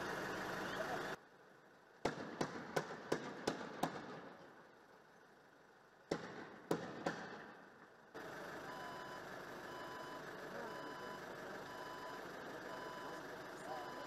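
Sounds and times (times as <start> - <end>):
street noise: 0.0 - 14.0
vehicle reversing alarm beeping: 8.2 - 14.0.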